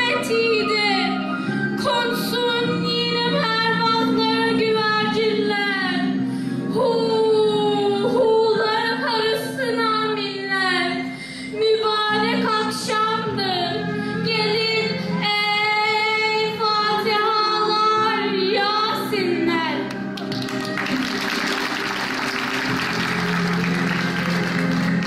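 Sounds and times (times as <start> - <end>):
girl singing slow melody: 0.0 - 20.0.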